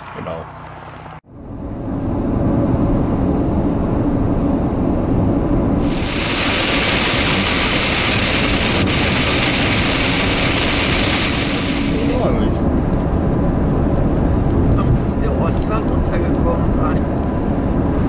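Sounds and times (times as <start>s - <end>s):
road and engine rumble: 0.0s - 18.0s
rain pelting windscreen and roof: 5.8s - 12.6s.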